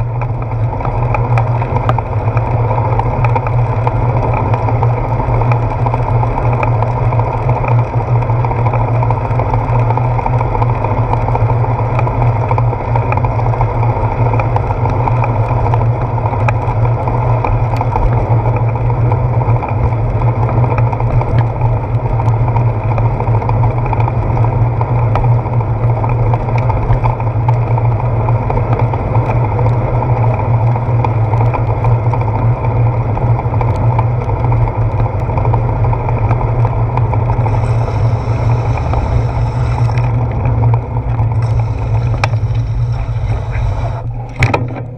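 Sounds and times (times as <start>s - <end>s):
bicycle road rumble: 0.0s - 44.9s
wind noise: 12.8s - 44.9s
hiss of wet pavement: 37.4s - 40.1s, 41.4s - 44.1s.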